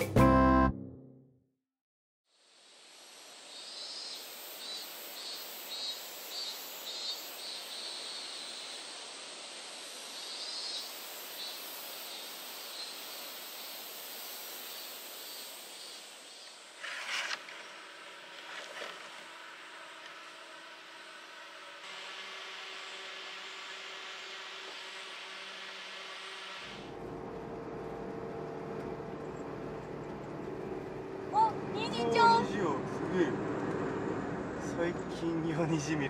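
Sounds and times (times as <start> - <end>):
insect drone: 2.3 - 29.5
pulsed insect call: 2.4 - 26.9.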